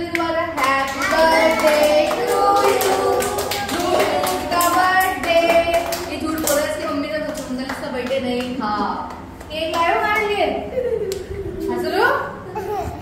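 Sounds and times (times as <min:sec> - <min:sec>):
children clapping hands: 0:00.1 - 0:10.3.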